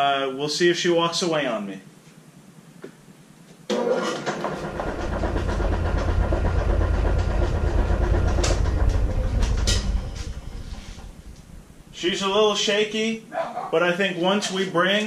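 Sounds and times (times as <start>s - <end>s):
wood lathe rumbling and rattling: 3.7s - 12.0s.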